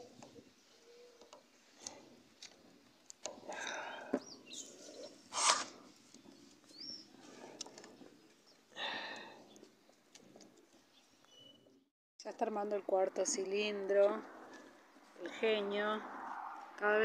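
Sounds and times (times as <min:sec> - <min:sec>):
birds chirping: 0:00.0 - 0:11.9.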